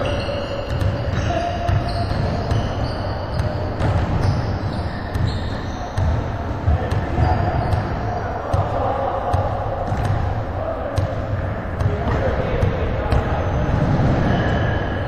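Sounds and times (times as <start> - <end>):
high-pitched shoe squeaks: 0.0 - 6.3, 13.5 - 15.0
basketball bouncing on wooden floor: 0.0 - 10.3.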